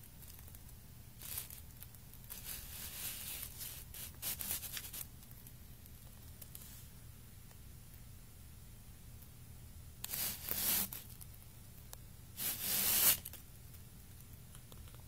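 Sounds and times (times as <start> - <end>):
low steady hum: 0.0 - 15.0
faint scratchy rustling: 1.2 - 5.4.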